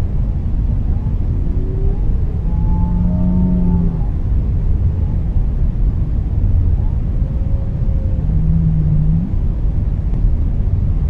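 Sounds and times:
deep rumble of water: 0.0s - 11.0s
whale calls: 0.9s - 4.4s, 6.7s - 9.5s.

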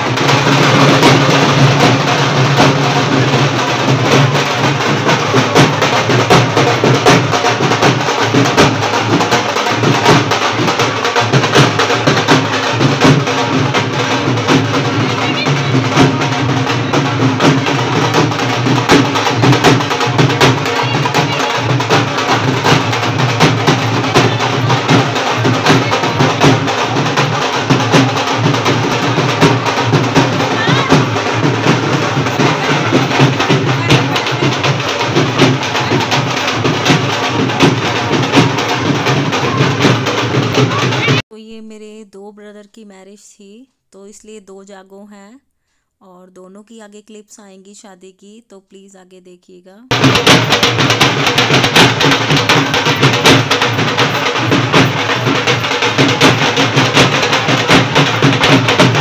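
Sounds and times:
drums played in fast rhythm: 0.0s - 41.9s, 49.9s - 59.0s.

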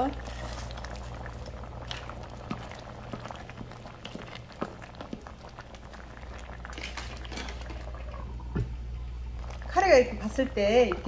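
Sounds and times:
curry bubbling and popping: 0.0s - 11.0s
steady low hum: 0.0s - 11.0s.

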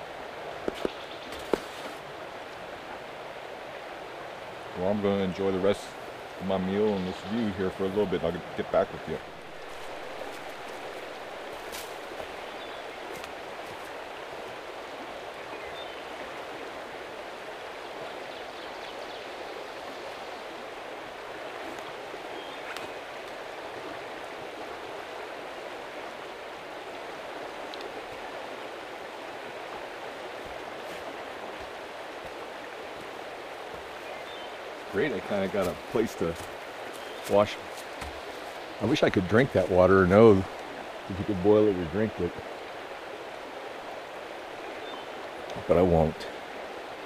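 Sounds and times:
creek rushing: 0.0s - 47.0s
faint clicks: 27.7s - 27.9s.

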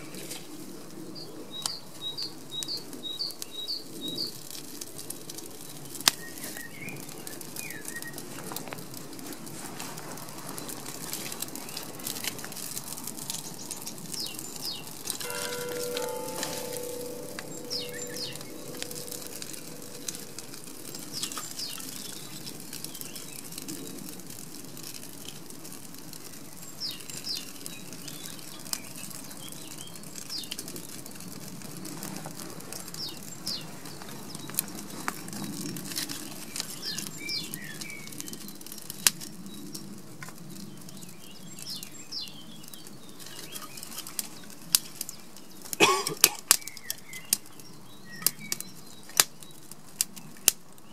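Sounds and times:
wood fire crackling: 0.0s - 50.9s
birds chirping: 11.6s - 23.3s.

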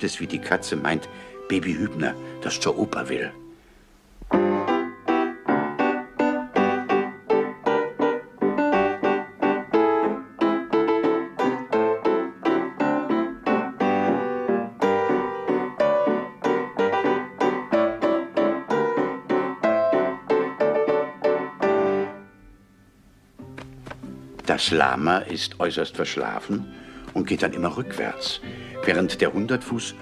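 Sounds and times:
piano repeated chords: 0.0s - 30.0s.

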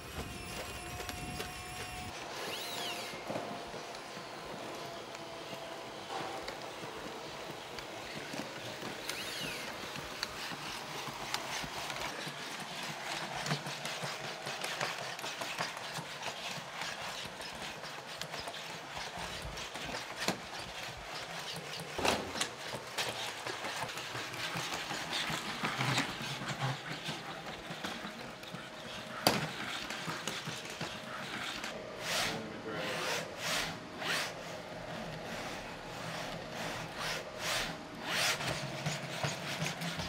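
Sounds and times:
robot mechanical whir: 0.0s - 3.8s, 8.0s - 13.8s.

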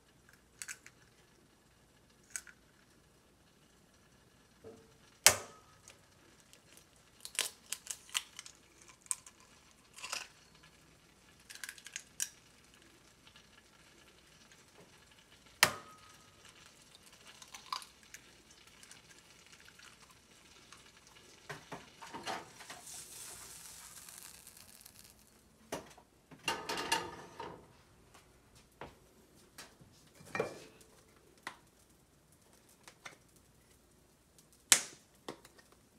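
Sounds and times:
soft hiss: 0.0s - 26.4s, 27.3s - 35.9s
clatter of kitchen things: 4.6s - 10.8s, 15.6s - 19.1s, 19.8s - 27.8s, 29.6s - 31.6s.

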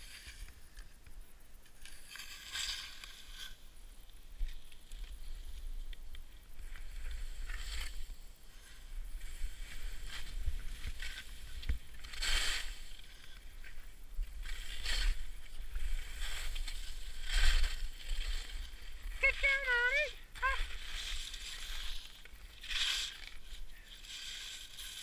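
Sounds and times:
wind rumbling on microphone: 3.2s - 25.0s
skis swishing over snow: 6.6s - 25.0s.

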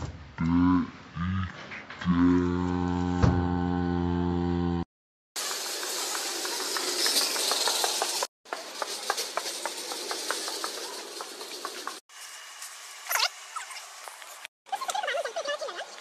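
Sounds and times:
shopping trolley rattling: 5.4s - 12.0s.

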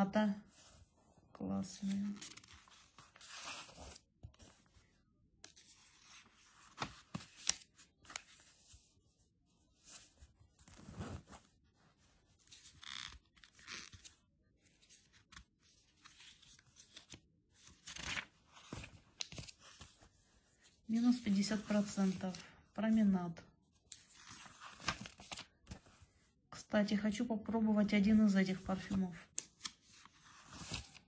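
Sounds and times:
paper pages turning: 1.7s - 4.8s, 5.4s - 8.8s, 12.4s - 20.2s, 23.8s - 26.0s, 28.6s - 31.0s.

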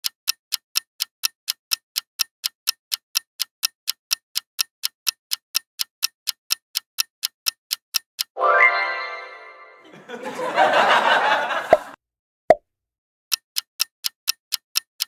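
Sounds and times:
clock ticking: 0.0s - 8.4s, 13.3s - 15.0s.

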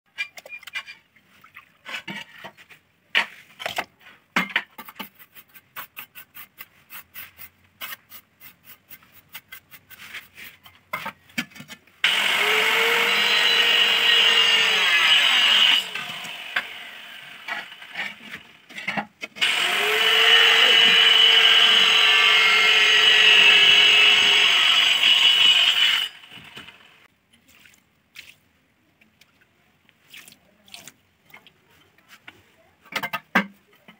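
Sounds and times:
electric power tool motor: 12.0s - 17.9s, 19.4s - 27.0s.

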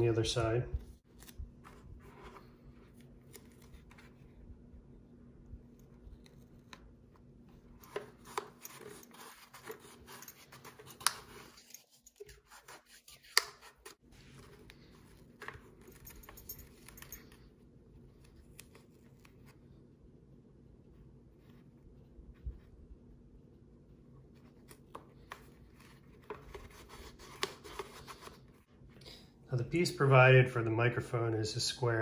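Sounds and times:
scratchy handling and rubbing: 0.4s - 4.5s, 5.6s - 19.7s, 24.1s - 28.7s.

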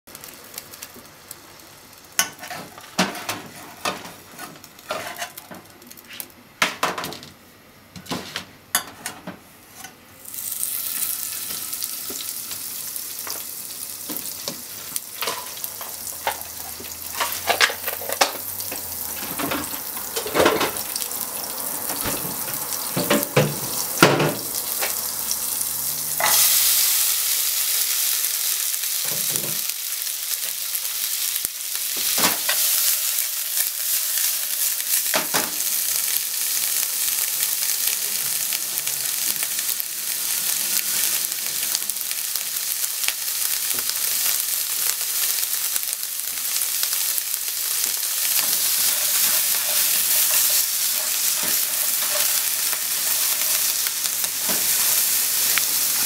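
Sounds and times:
butter sizzling in frying pan: 0.1s - 6.1s, 10.2s - 56.0s
onions sizzling in hot fat: 0.1s - 7.2s, 10.2s - 56.0s
utensils knocking on pan: 22.0s - 25.0s.

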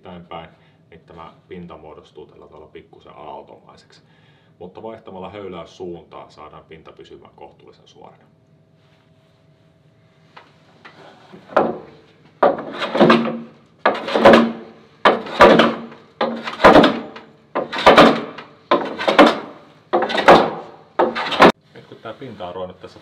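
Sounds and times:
hand plane shaving wood: 12.5s - 21.6s.

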